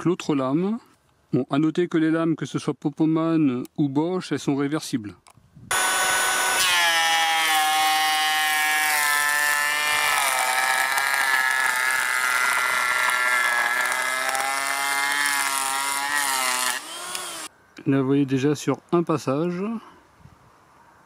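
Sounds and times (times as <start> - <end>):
electric planer cutting wood: 5.7 - 17.5.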